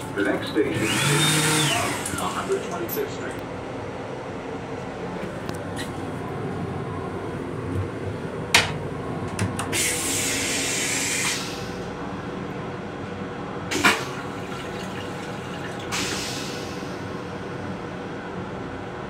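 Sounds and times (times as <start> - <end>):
toilet hiss: 13.7 - 16.9.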